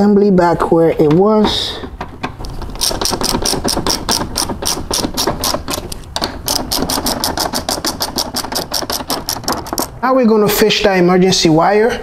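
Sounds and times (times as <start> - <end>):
ratchet wrench clicking: 2.8 - 9.9.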